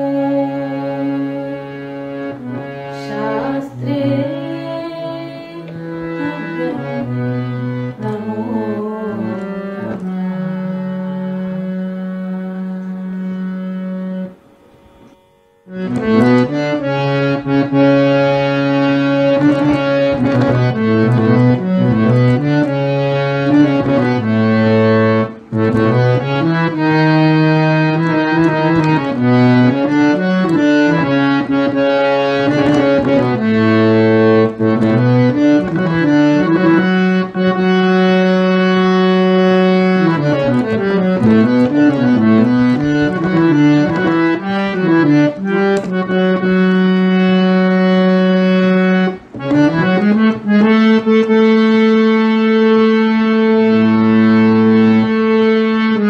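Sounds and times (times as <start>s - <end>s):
harmonium melody: 0.0s - 56.0s.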